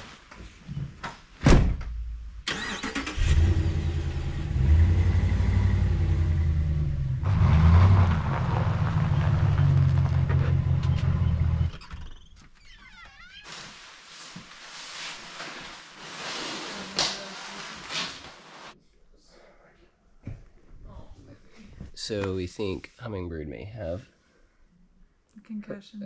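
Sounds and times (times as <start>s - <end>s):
car engine running: 3.3s - 11.8s.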